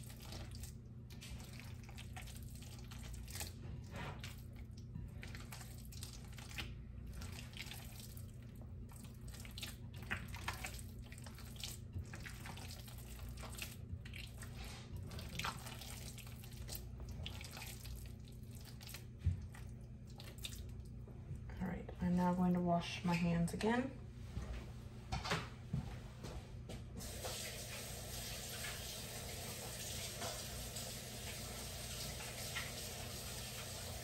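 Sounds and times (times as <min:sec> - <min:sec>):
hands squelching meat mixture: 0:00.0 - 0:21.1
steady low hum: 0:00.0 - 0:27.0.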